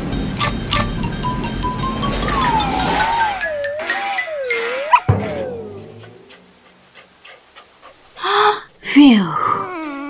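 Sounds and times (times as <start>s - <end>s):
cartoon soundtrack music: 0.4s - 6.6s
thin whistling tone: 1.9s - 6.5s.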